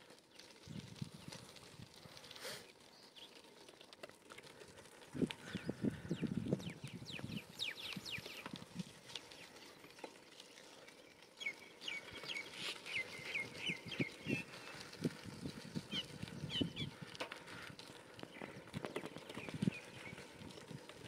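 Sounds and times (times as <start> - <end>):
birds calling: 5.4 - 8.6, 10.8 - 15.0, 15.7 - 20.4.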